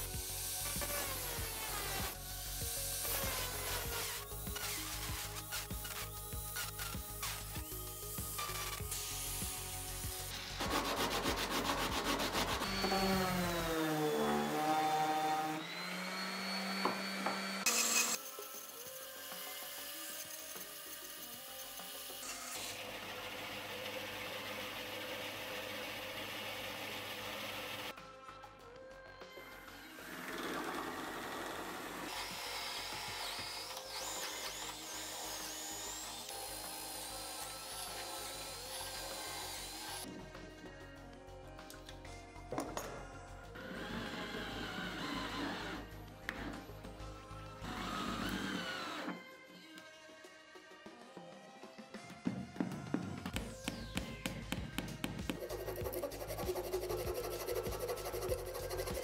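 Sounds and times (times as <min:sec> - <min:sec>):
orbital sander on wood: 0:07.0 - 0:21.0, 0:55.3 - 0:59.0
cordless drill whining: 0:12.5 - 0:18.2, 0:43.6 - 0:46.7, 0:47.6 - 0:49.3.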